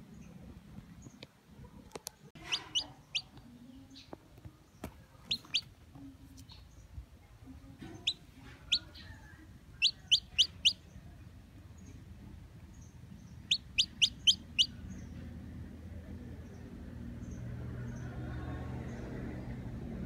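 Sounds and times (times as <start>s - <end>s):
chick peeping: 1.8s - 4.1s, 5.2s - 6.6s, 7.8s - 11.1s, 13.3s - 15.2s.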